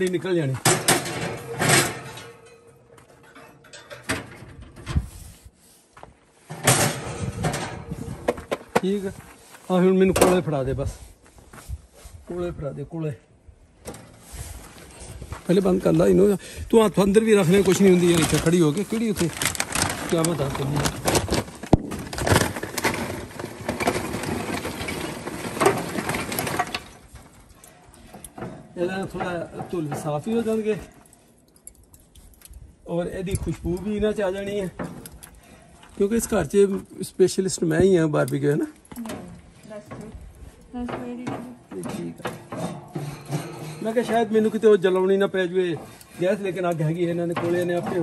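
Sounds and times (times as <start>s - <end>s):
charcoal clattering into grill: 0.0s - 5.0s, 6.5s - 9.0s, 17.2s - 27.4s, 40.8s - 48.0s
metal grill grates clanking: 0.6s - 5.0s, 40.8s - 48.0s.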